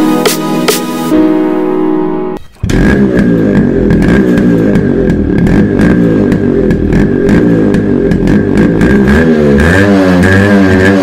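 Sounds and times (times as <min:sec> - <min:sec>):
motorcycle engine idling: 0:02.5 - 0:09.1
irregular engine ticks: 0:02.5 - 0:11.0.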